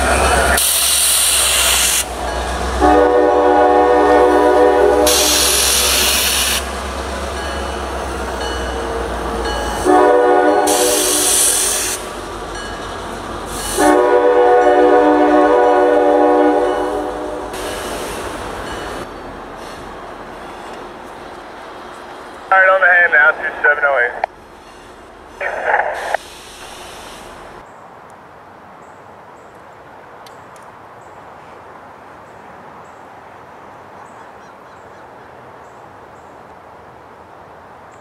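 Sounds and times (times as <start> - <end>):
locomotive air horn blasts: 2.8 - 6.6, 9.8 - 12.1, 13.5 - 18.1.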